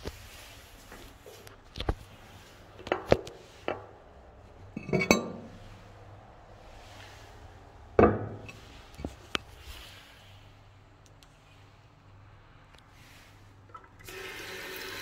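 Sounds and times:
ceramic lid clattering: 4.8s - 5.5s
ceramic lid clinks and knocks: 4.8s - 5.5s.

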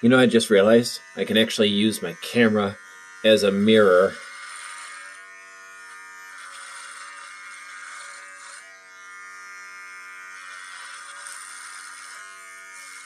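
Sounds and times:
electric beard trimmer buzzing: 0.0s - 13.0s
trimmer cutting beard hair: 0.0s - 13.0s.

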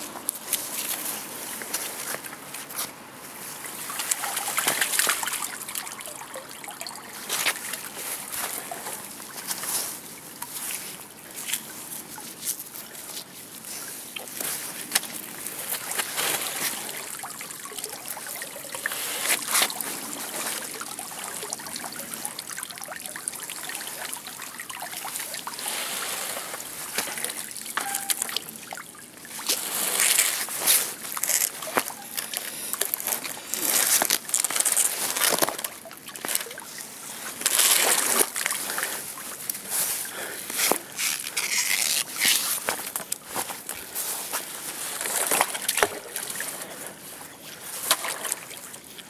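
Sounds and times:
water sloshing and trickling: 0.0s - 49.0s
water splashing: 3.4s - 49.0s.

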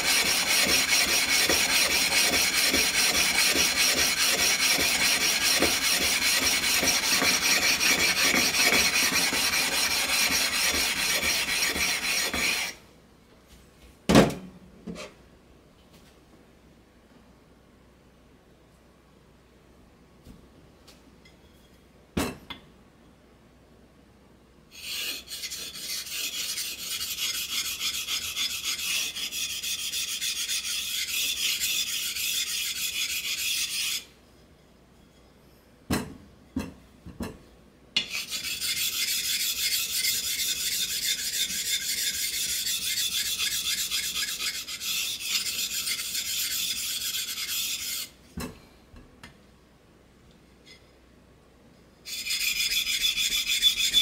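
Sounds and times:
whetstone rasping on stone: 0.0s - 12.8s, 24.8s - 34.0s, 38.0s - 48.2s, 52.1s - 54.0s.

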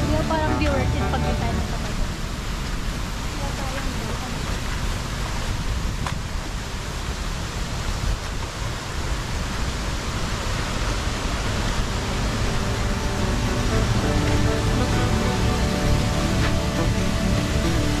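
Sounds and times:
steady rushing noise: 0.0s - 18.0s
deep uneven rumble: 10.2s - 18.0s.

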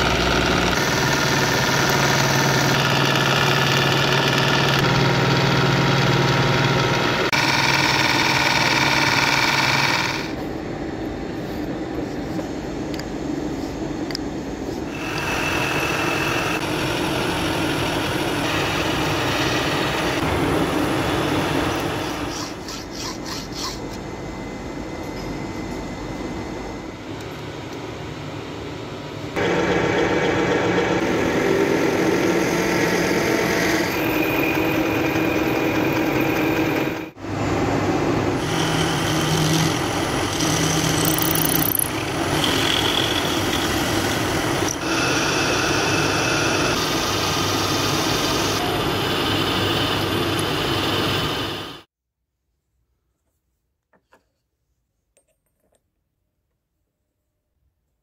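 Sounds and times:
machine tool running: 0.0s - 10.4s, 14.9s - 23.8s, 29.4s - 37.2s, 38.2s - 51.9s
milling machine cutting metal: 14.9s - 23.6s, 29.4s - 37.1s, 38.4s - 51.8s.

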